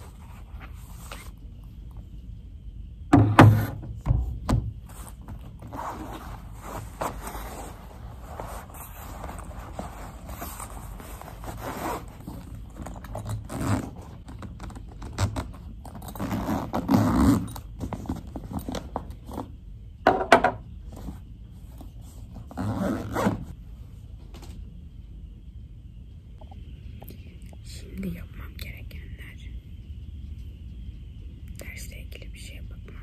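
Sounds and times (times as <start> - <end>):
bag rustling and scraping: 0.0 - 1.4, 4.8 - 19.5, 20.9 - 23.6
backpack zipper: 5.7 - 12.4, 13.0 - 14.1, 16.0 - 17.6, 22.5 - 23.5.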